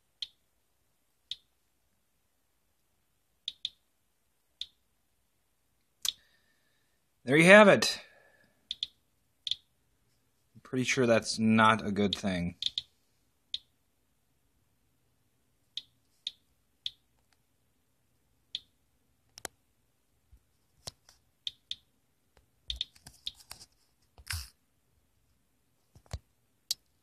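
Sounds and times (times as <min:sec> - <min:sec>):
geiger counter clicking: 0:03.5 - 0:03.8, 0:08.7 - 0:09.7, 0:12.1 - 0:12.9, 0:21.5 - 0:21.9, 0:22.7 - 0:23.4.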